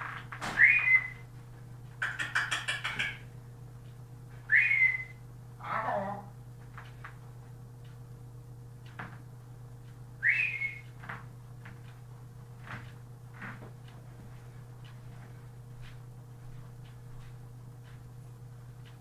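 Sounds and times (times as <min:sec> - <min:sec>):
parrot short rising whistle: 0:00.6 - 0:01.2, 0:04.5 - 0:05.2, 0:10.2 - 0:10.8.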